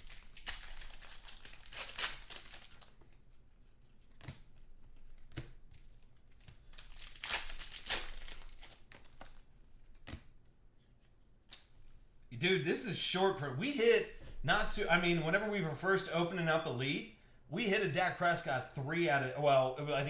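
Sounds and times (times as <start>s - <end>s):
foil wrapper crinkling: 0.0s - 3.3s, 6.2s - 9.4s
cards clicking: 3.9s - 10.4s.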